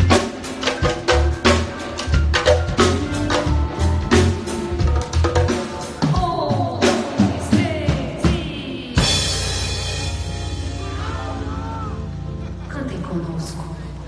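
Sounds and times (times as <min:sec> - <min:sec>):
drum kit beating: 0:00.0 - 0:12.4
bass: 0:00.0 - 0:14.0
woman singing into a microphone: 0:06.0 - 0:09.4.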